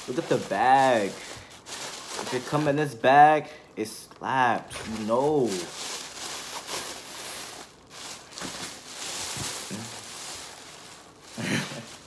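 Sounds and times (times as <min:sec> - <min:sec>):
plastic bag rustling and crinkling: 0:00.0 - 0:12.0.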